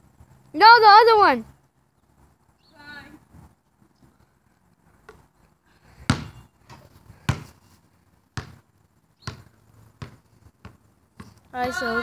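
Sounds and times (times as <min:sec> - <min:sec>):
basketball bouncing: 0:06.1 - 0:07.6, 0:08.4 - 0:11.8.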